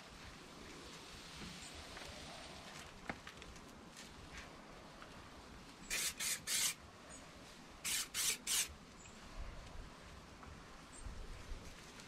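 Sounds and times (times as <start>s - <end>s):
spray gun hissing: 5.9s - 6.8s, 7.8s - 8.7s.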